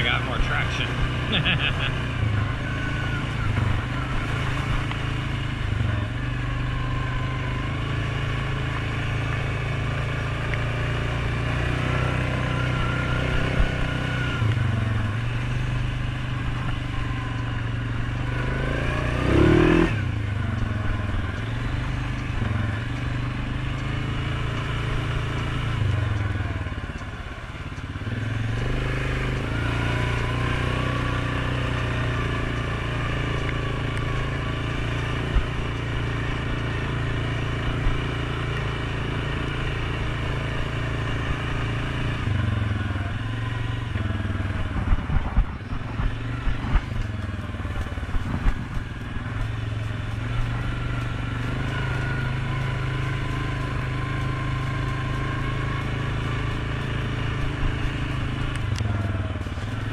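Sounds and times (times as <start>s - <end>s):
atv engine running: 0.0s - 59.9s.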